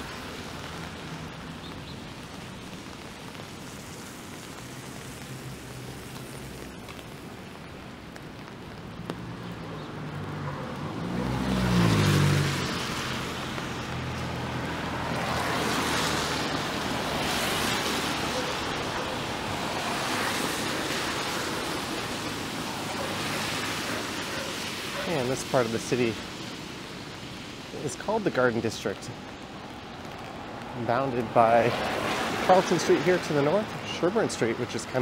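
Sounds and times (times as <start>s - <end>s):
tyres hissing on wet pavement: 0.0s - 35.0s
vehicle driving past: 10.0s - 18.7s.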